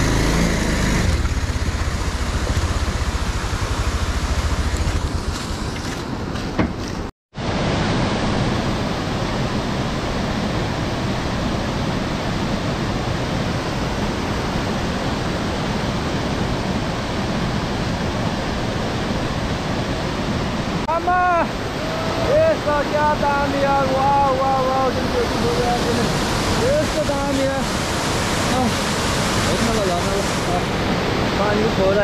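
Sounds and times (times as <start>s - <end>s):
waterfall rushing: 7.4s - 32.0s.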